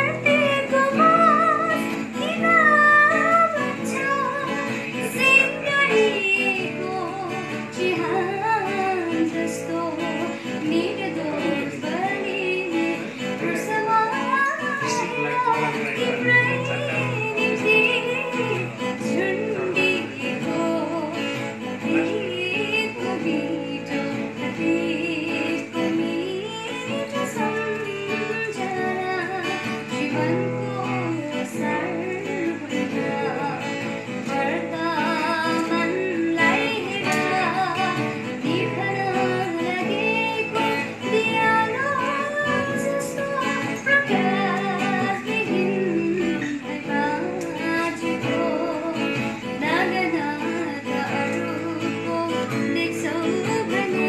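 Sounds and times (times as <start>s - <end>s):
acoustic guitar: 0.0s - 54.0s
woman singing: 0.0s - 54.0s.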